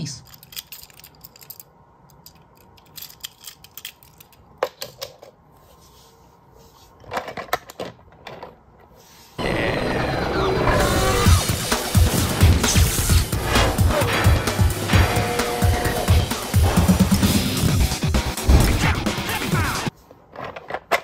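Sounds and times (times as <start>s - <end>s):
toy cars clicking and clattering: 0.2s - 5.4s
loud music: 9.4s - 19.9s.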